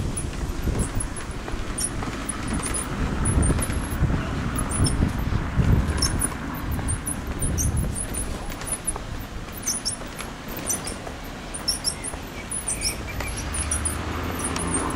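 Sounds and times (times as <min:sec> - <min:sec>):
high-pitched squeaks: 0:00.0 - 0:14.9
pram wheels rumbling on pavement: 0:00.0 - 0:14.9.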